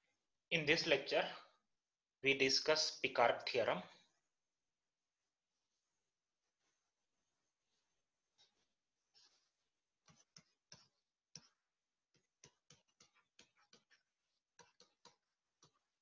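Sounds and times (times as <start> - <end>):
stylus tapping on pen tablet: 10.0 - 16.0.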